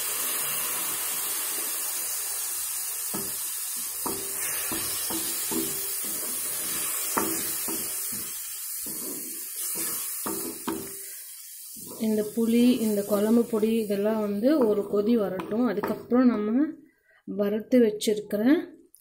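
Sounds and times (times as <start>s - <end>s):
liquid sizzling in a hot pan: 0.0s - 15.9s
wooden spatula scraping pan: 4.1s - 11.1s.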